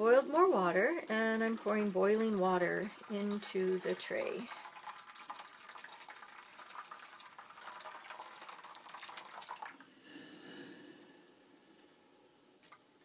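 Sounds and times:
water pouring into a tray: 0:00.1 - 0:09.8.

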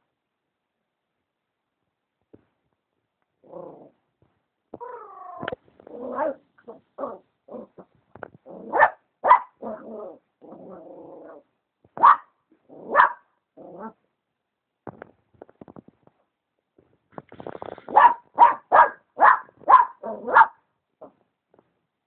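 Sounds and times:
puppy whining: 0:04.8 - 0:07.8
puppy yapping and growling: 0:04.8 - 0:14.0, 0:17.9 - 0:21.2.

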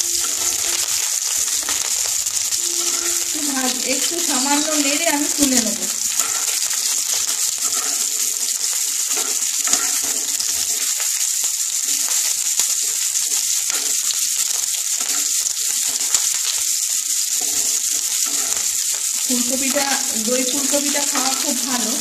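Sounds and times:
wooden spatula scraping: 0:00.0 - 0:10.9, 0:17.4 - 0:21.9
vegetables sizzling in oil: 0:00.0 - 0:22.0.

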